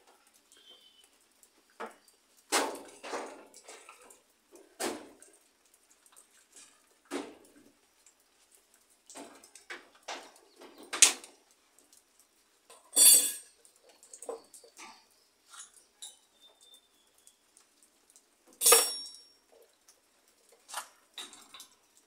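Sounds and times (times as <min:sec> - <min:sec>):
metal tools clanking on sheet metal: 0:12.7 - 0:13.5, 0:18.6 - 0:19.3
light metal clinks: 0:12.7 - 0:14.2, 0:18.6 - 0:19.5.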